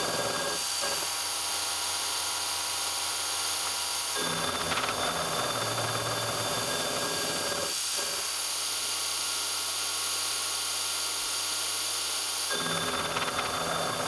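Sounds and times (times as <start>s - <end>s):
milling machine cutting metal: 0.0s - 2.8s, 3.6s - 8.3s, 12.4s - 14.0s.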